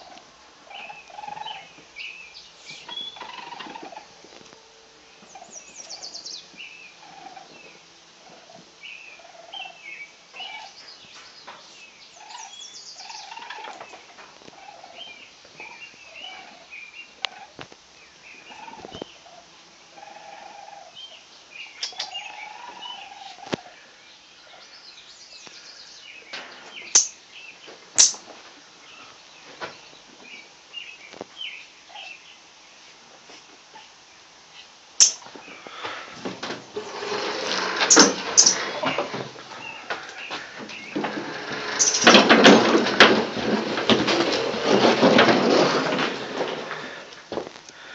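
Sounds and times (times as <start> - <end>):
small animals squeaking: 2.6 - 4.2, 36.8 - 42.8.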